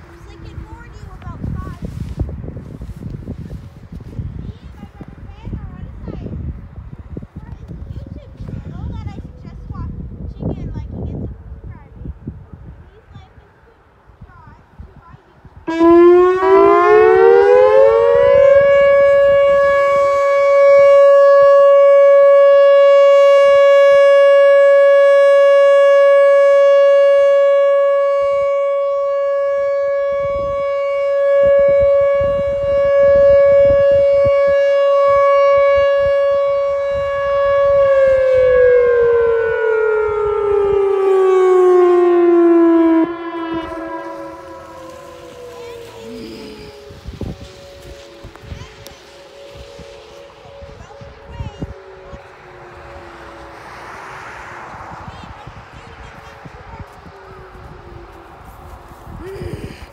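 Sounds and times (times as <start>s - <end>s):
warning siren wailing: 15.6s - 59.9s.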